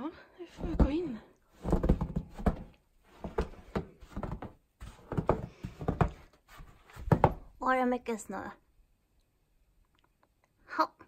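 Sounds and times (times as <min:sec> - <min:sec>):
footsteps on wooden deck: 0:01.6 - 0:07.5.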